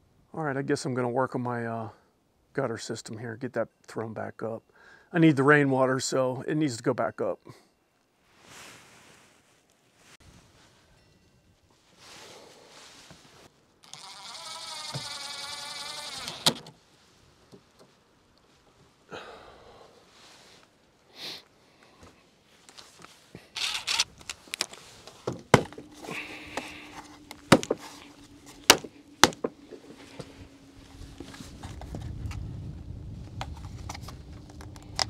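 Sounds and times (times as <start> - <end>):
cordless drill whirring: 13.8 - 16.6, 23.6 - 24.1
plastic gutter parts clicking: 13.9 - 16.7
low steady hum: 23.4 - 35.0.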